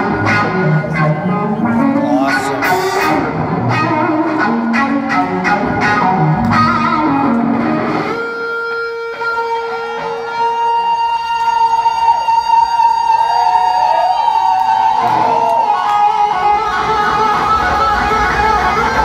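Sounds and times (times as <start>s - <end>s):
electric guitar bending note: 0.0s - 12.1s
blues-rock band playing: 0.0s - 14.0s, 14.9s - 19.0s.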